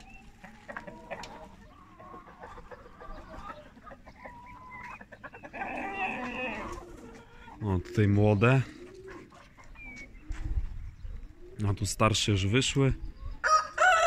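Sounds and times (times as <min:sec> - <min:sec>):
hens clucking: 0:00.0 - 0:14.0.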